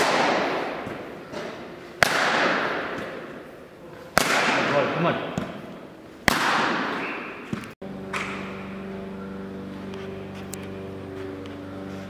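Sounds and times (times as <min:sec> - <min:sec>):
cricket bat striking ball: 0:02.0 - 0:03.4, 0:04.2 - 0:08.4
background music with held notes: 0:07.8 - 0:12.0.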